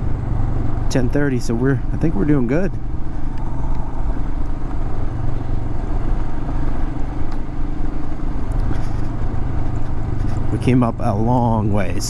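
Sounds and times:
motorcycle engine running: 0.0s - 12.0s
road noise rush: 0.0s - 12.0s.

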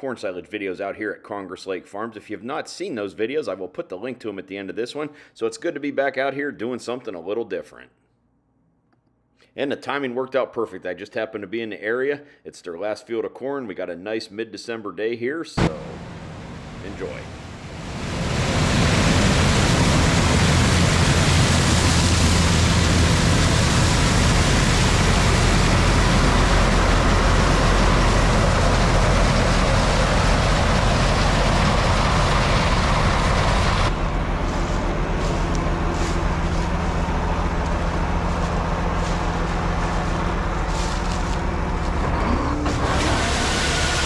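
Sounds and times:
diesel engines droning: 15.6s - 44.0s
loud rushing noise: 15.6s - 44.0s.

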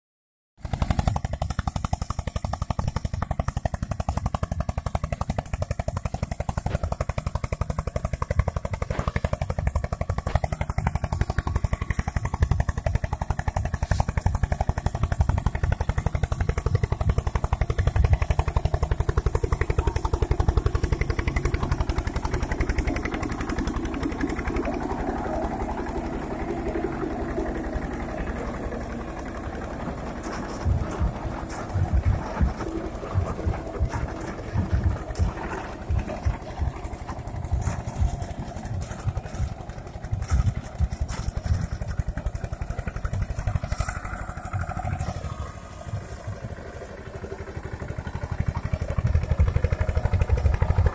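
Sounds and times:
tractor diesel engine under load: 0.6s - 50.9s
rotavator blades clattering in dirt: 28.3s - 45.4s.

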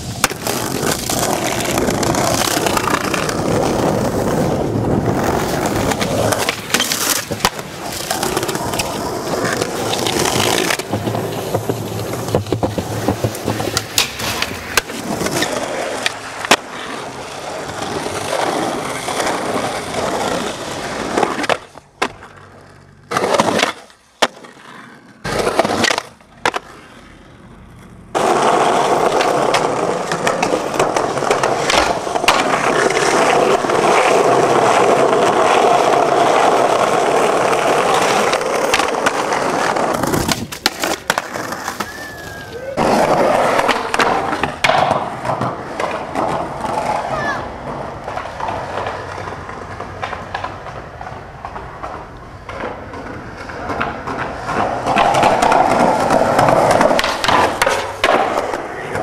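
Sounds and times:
skateboard tail pops: 0.0s - 16.8s, 28.1s - 35.6s, 36.2s - 47.0s, 47.6s - 59.0s
skateboard trucks grinding: 0.0s - 59.0s
skateboard wheels rolling: 0.0s - 59.0s
skateboard landings clacking: 0.2s - 16.7s, 28.1s - 47.0s, 47.6s - 59.0s.

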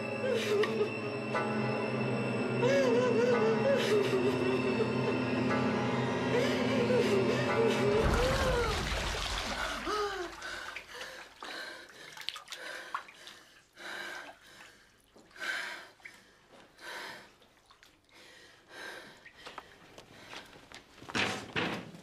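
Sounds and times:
bath water moving: 7.9s - 15.4s, 17.3s - 18.2s.

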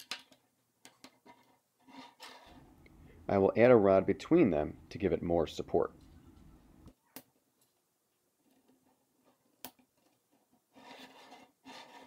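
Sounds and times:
plastic frame scraping on table: 1.2s - 2.6s, 10.7s - 12.0s.

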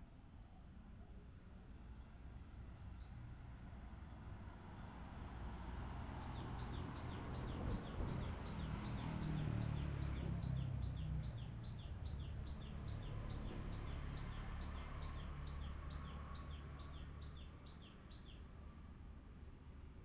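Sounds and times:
bird chirping: 6.1s - 18.4s.

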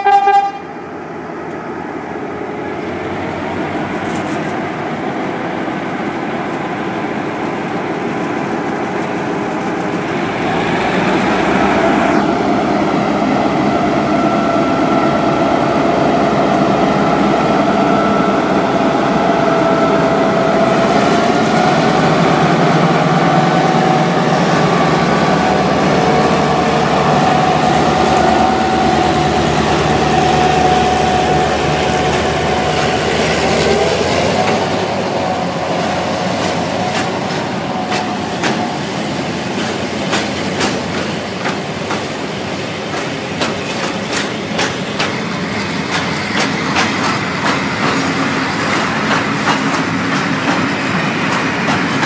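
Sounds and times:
diesel locomotive engine running: 0.0s - 52.0s
train wheels clicking over rail joints: 25.2s - 52.0s.

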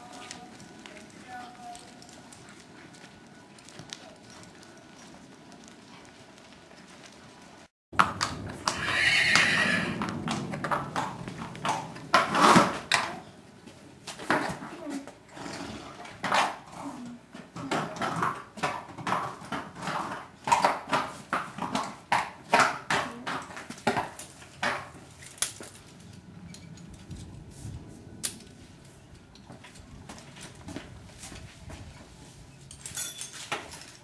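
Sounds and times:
horse hooves on concrete: 0.0s - 34.0s
light clinks: 32.6s - 34.0s.

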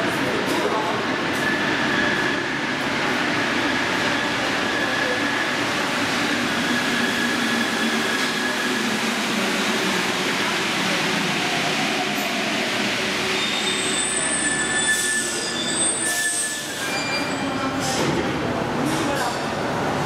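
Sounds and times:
train running through station: 0.0s - 20.0s.

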